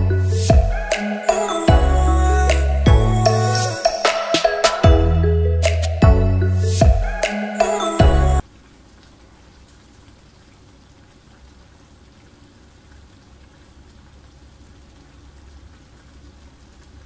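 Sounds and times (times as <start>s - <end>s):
filling simmering in a frying pan: 8.4s - 17.0s.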